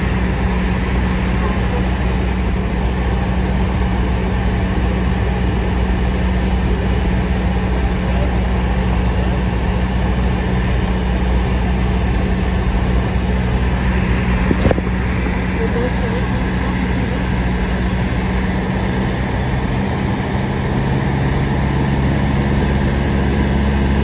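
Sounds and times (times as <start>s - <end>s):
propeller engine drone: 0.0s - 24.0s
wind rush: 11.6s - 24.0s.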